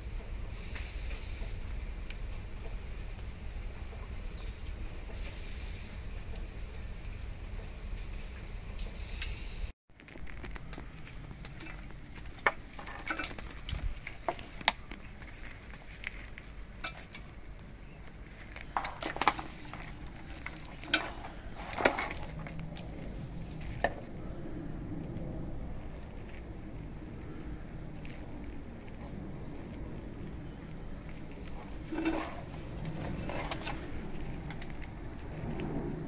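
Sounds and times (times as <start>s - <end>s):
small clicks and rustling: 9.9s - 24.1s, 25.0s - 27.2s, 27.9s - 35.8s.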